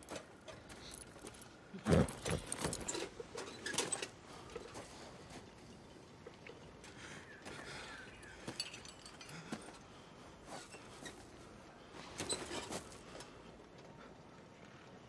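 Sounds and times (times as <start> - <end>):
metal chains clinking: 0.7 - 4.1, 8.4 - 9.8.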